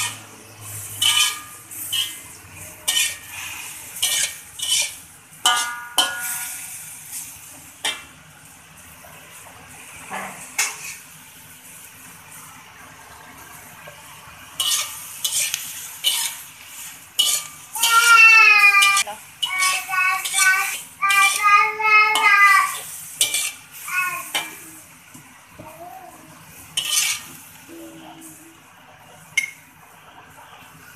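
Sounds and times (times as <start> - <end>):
frying sizzle: 0.0 - 30.9
metal turner clanking on wok: 0.8 - 3.4, 4.0 - 6.7, 14.6 - 16.4, 17.2 - 21.5, 22.1 - 23.6, 26.8 - 27.3.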